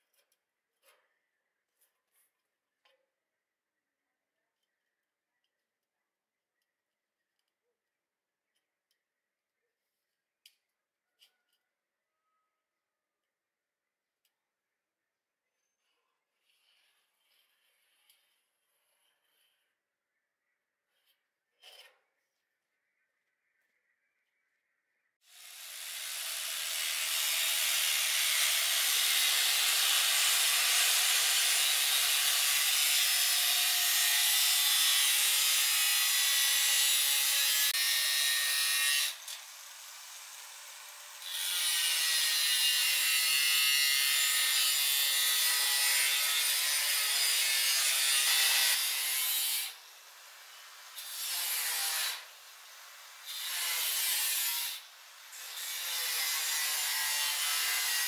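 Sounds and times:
power tool grinding a surface: 25.3s - 58.0s.

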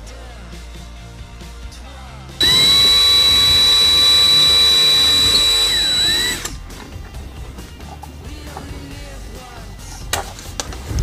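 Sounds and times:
electric drill whining: 2.4s - 6.6s.

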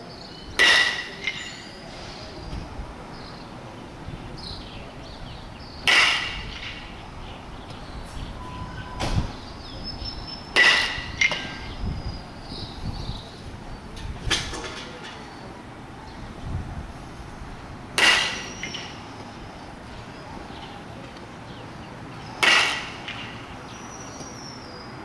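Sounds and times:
baseball bat hitting ball: 0.6s - 1.6s, 5.8s - 7.0s, 10.5s - 11.8s, 17.9s - 19.3s, 22.4s - 23.5s.

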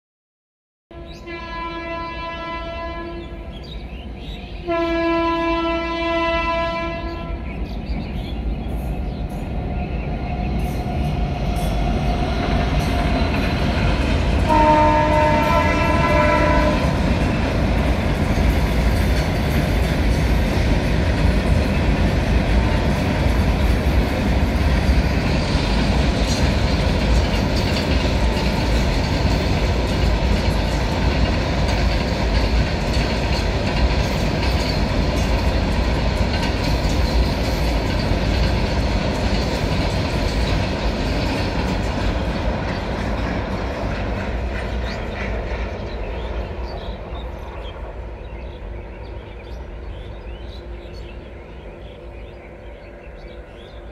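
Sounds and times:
train horn: 0.9s - 3.6s, 4.6s - 7.6s, 14.4s - 17.4s
freight train wagons on rails: 0.9s - 53.9s.

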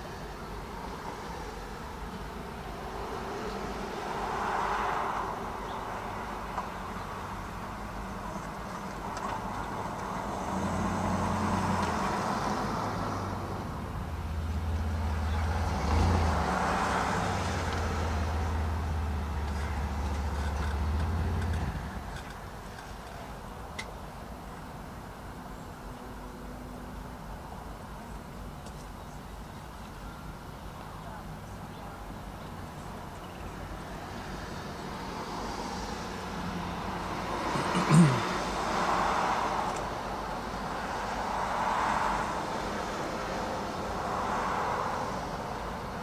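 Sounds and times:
vehicles passing: 0.0s - 46.0s
heavy vehicle engine rumble: 5.2s - 41.4s.

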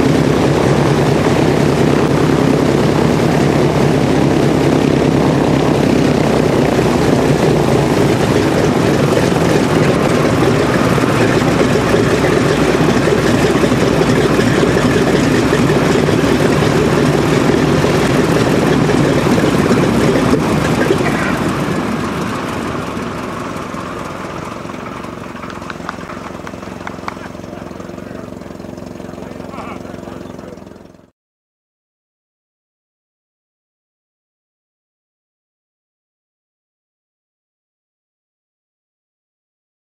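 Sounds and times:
propeller winding down: 0.0s - 31.1s
radial aircraft engine idling: 0.0s - 31.1s.

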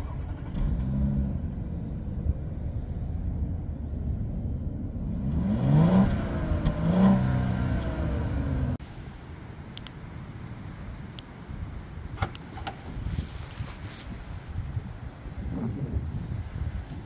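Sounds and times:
car engine revving: 5.0s - 8.8s.

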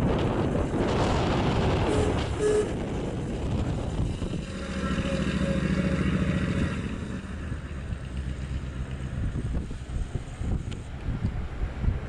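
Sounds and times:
car engine driving past: 4.2s - 9.4s.

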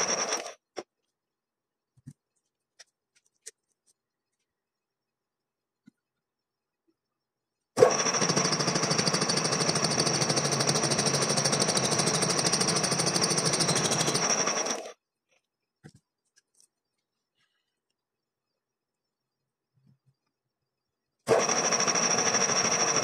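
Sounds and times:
gear cutting machine rattling: 0.0s - 0.6s, 7.8s - 14.9s, 21.3s - 23.0s.

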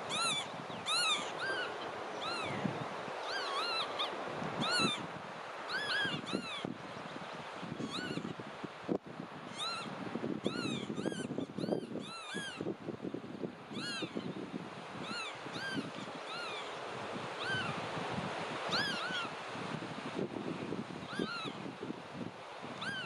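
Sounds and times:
sandpiper whistled calls: 0.0s - 5.1s, 5.7s - 6.7s, 7.8s - 8.3s, 9.5s - 12.6s, 13.7s - 14.2s, 15.0s - 16.8s, 17.4s - 17.8s, 18.7s - 19.3s, 21.1s - 21.6s, 22.8s - 23.0s.

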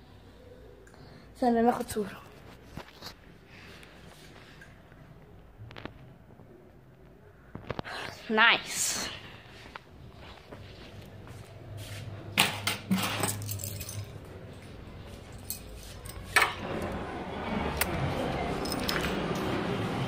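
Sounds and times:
keys jangling: 12.9s - 16.4s, 18.6s - 19.6s.

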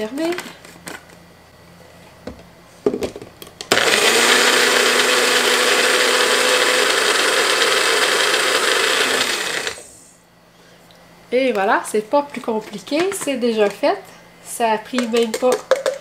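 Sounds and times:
blender motor running: 3.7s - 10.1s.

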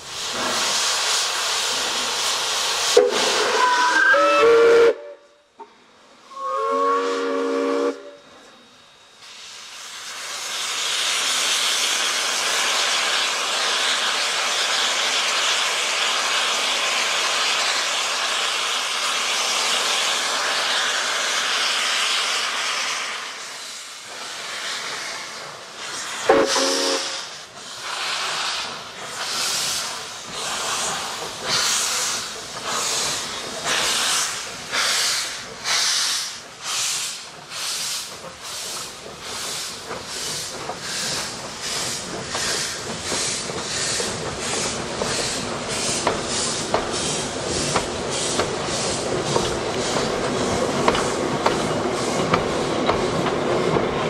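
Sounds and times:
steam hissing: 0.0s - 5.2s, 6.1s - 54.0s
steam locomotive whistle: 3.0s - 5.6s, 6.2s - 8.4s, 26.2s - 27.4s.

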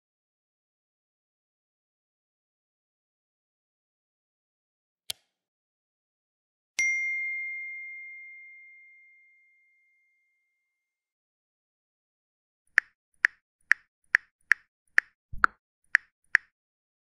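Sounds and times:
sharp plop-like ticks: 12.8s - 16.5s.

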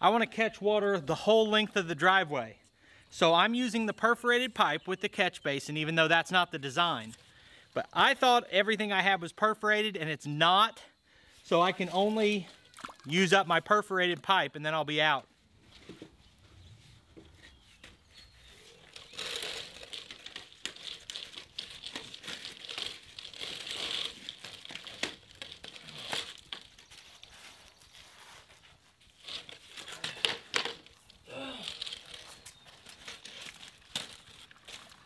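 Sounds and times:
plastic pipe crinkling and scraping: 5.2s - 9.0s, 11.4s - 35.0s.

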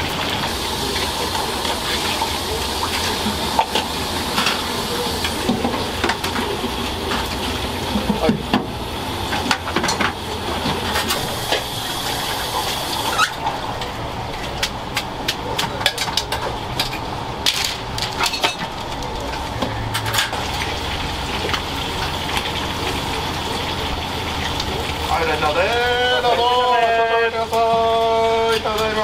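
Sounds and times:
metal trays and dishes clattering: 15.4s - 20.6s.

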